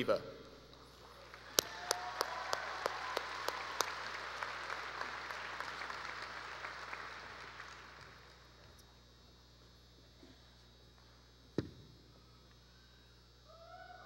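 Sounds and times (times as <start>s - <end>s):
audience applauding: 1.0s - 8.5s
close sharp hand claps: 1.2s - 8.4s.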